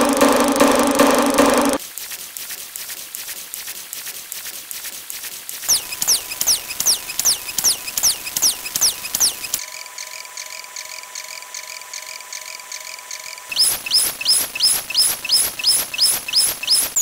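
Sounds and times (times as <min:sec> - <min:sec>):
high blips: 0:00.0 - 0:01.8
falling chirp: 0:05.7 - 0:09.6, 0:13.5 - 0:17.0.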